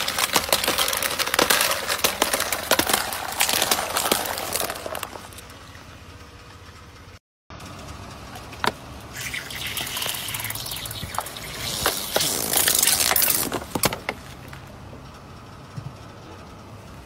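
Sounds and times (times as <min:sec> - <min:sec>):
car tyre crushing objects: 0:00.0 - 0:05.6, 0:08.3 - 0:14.8.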